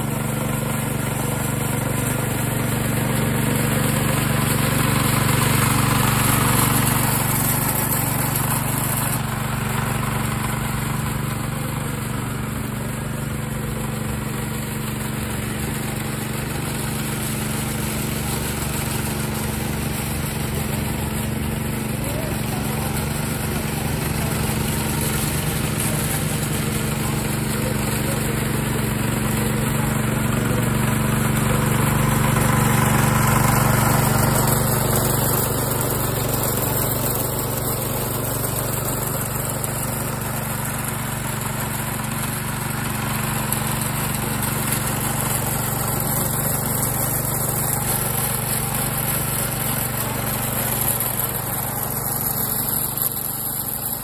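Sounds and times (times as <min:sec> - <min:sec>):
small petrol engine running: 0:00.0 - 0:54.0.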